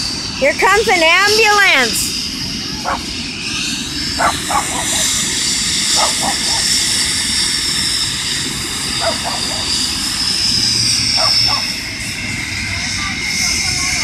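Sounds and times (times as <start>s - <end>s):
helicopter turbine whine: 0.0s - 14.0s
rotor and engine rumble: 0.0s - 14.0s
dog barking: 2.8s - 3.1s, 4.2s - 5.2s, 5.9s - 6.7s, 9.0s - 9.7s, 11.2s - 11.7s.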